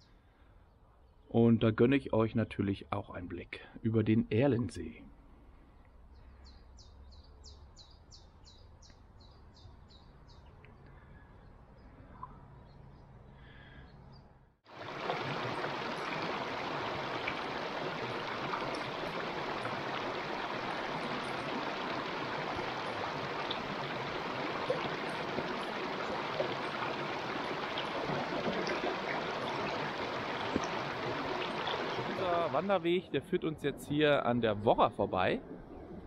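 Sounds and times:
river rushing over rocks: 14.7 - 32.7.

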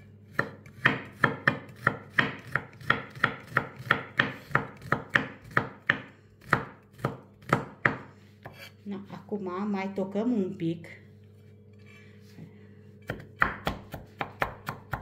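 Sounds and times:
knife chopping on a board: 0.3 - 8.7, 13.0 - 15.0.

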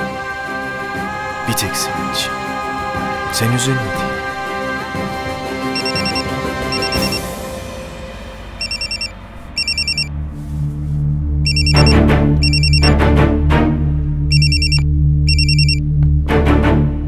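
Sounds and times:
dramatic background music: 0.0 - 17.0
mobile phone ringtone beeping: 5.8 - 7.2, 8.6 - 10.1, 11.5 - 12.9, 14.3 - 15.8.

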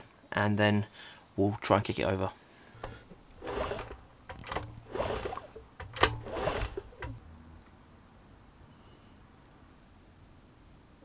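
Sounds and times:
engine turning over with clatter: 2.8 - 7.2.

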